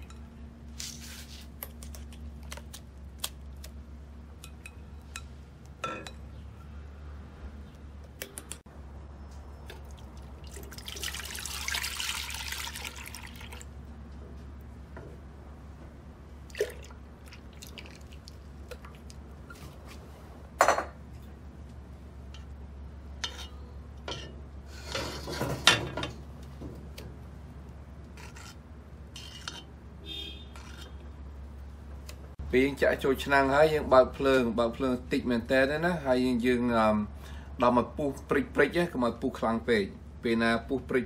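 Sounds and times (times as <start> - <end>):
low steady hum: 0.0 - 41.0
milk pouring into metal pot: 9.9 - 13.7.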